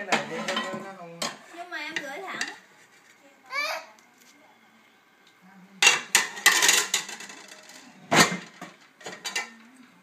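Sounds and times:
metal pots and lid clanging: 0:00.0 - 0:02.6, 0:05.8 - 0:09.6.

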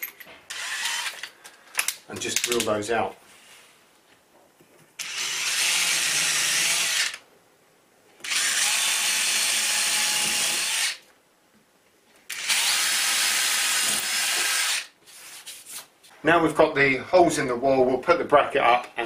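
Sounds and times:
cordless drill drilling into wall: 0:00.5 - 0:01.2, 0:05.0 - 0:07.2, 0:08.2 - 0:11.0, 0:12.3 - 0:14.9.

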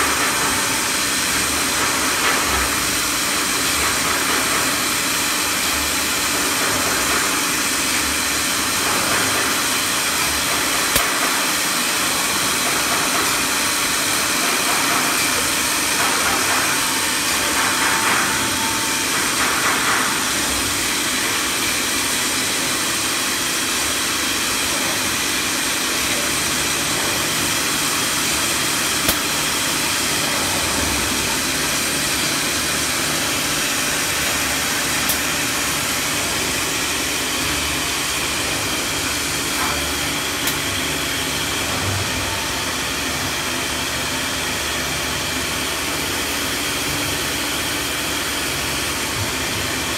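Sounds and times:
machine whine and hiss: 0:00.0 - 0:49.9.

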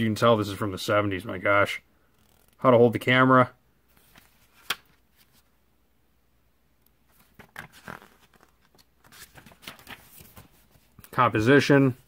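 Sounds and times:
paper pages turning: 0:03.9 - 0:05.5, 0:07.1 - 0:11.1
paper crinkling and rustling: 0:07.1 - 0:11.1.

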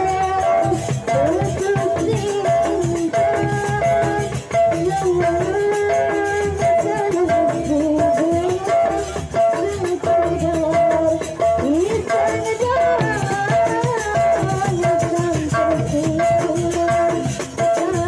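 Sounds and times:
drum-led percussion ensemble: 0:00.0 - 0:18.0
woman singing into microphone: 0:00.0 - 0:18.0.

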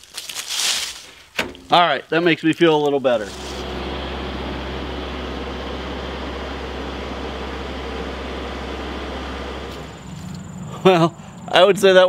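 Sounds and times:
tractor engine running: 0:03.2 - 0:12.0.

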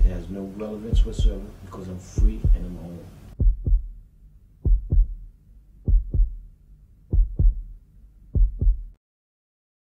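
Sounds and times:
heartbeat double thumps: 0:00.9 - 0:01.5, 0:02.2 - 0:02.8, 0:03.4 - 0:09.0.

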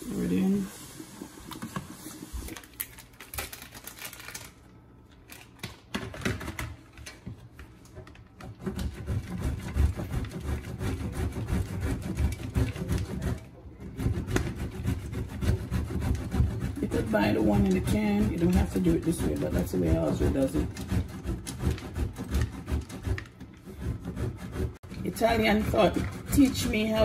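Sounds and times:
cheese grating on metal grater: 0:08.4 - 0:27.0
spoon stirring thick sauce: 0:08.5 - 0:27.0.

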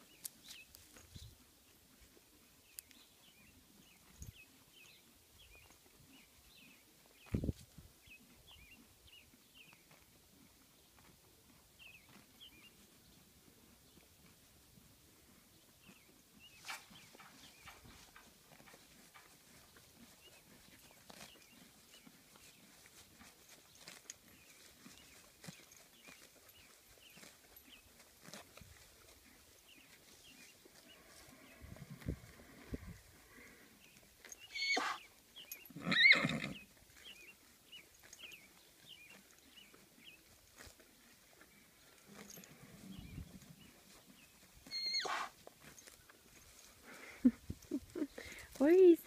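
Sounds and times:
horse whinnying: 0:34.4 - 0:35.1, 0:35.7 - 0:36.7, 0:44.6 - 0:45.4.

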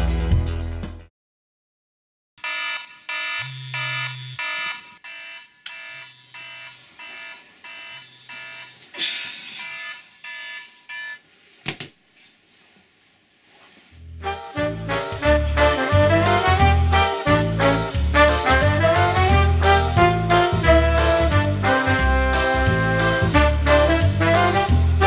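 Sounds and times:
phone alarm beeping: 0:02.4 - 0:08.8, 0:09.6 - 0:11.2.

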